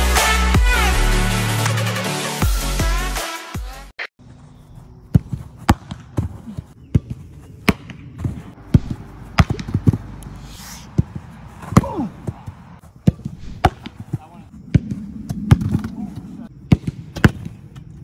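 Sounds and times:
footballs being kicked: 5.0s - 18.0s.

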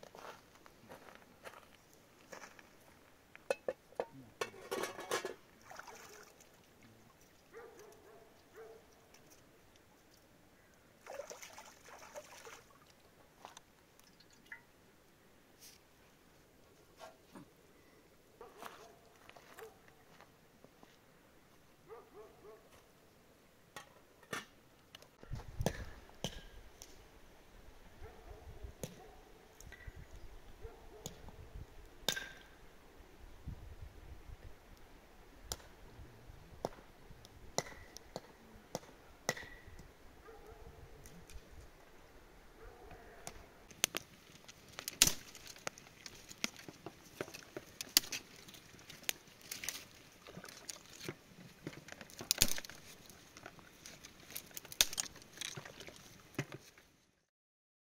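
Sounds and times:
cookware and utensils clinking: 3.5s - 5.4s.

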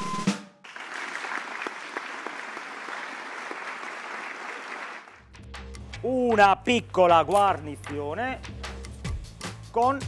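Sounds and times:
small audience clapping: 0.6s - 5.7s.

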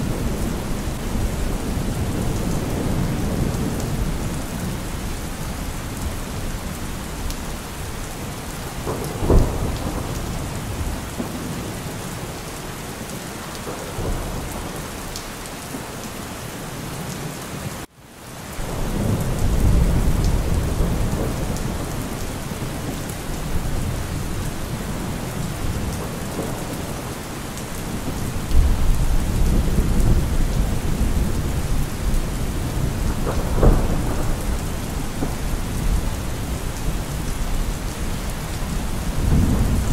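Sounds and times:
steady rain: 0.0s - 39.9s
thunder rumbling: 8.7s - 11.8s, 18.6s - 39.9s
sharp thunder cracks: 32.7s - 36.0s.

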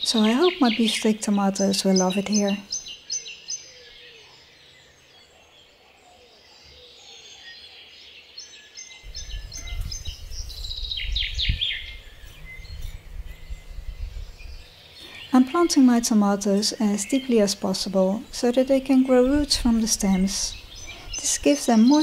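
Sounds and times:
songbirds chirping and trilling: 0.0s - 22.0s
low rumbling noise: 9.1s - 21.8s.

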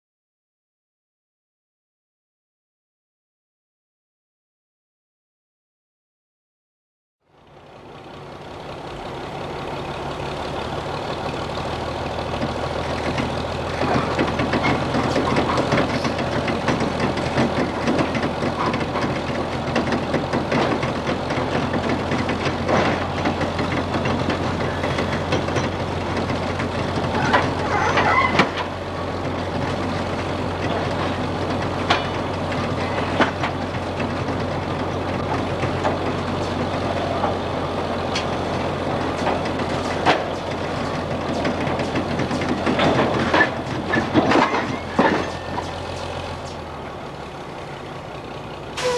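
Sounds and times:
heavy diesel engine running: 7.2s - 48.9s
clanks and knocks: 12.3s - 46.7s.

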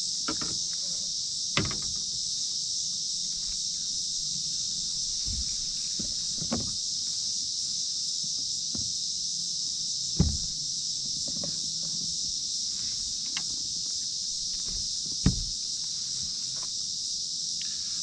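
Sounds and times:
insect chorus: 0.0s - 18.0s
knocks against kayak: 10.2s - 10.6s, 14.6s - 15.6s.

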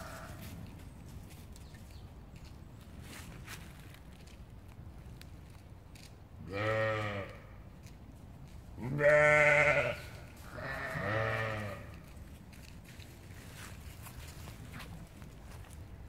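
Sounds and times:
sheep bleating: 6.4s - 7.4s, 8.8s - 12.0s.

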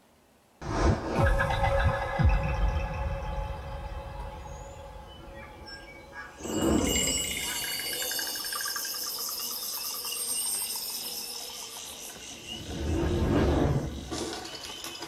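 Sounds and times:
pulsing insect calls: 1.4s - 15.0s.

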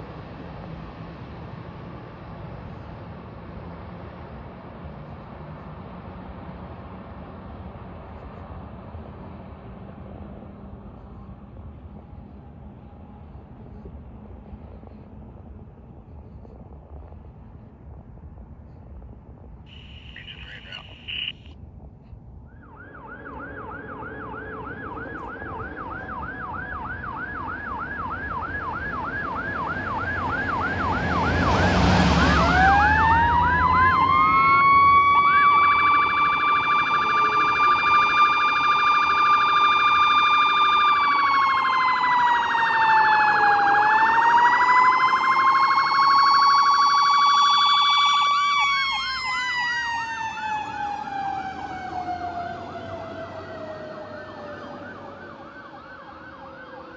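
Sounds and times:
fire engine siren: 19.7s - 21.5s, 22.4s - 56.9s.

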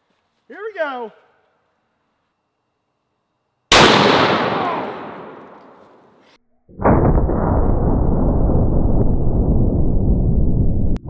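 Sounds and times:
rifle shot echo: 3.7s - 6.2s
loud low rumble: 6.8s - 11.0s.

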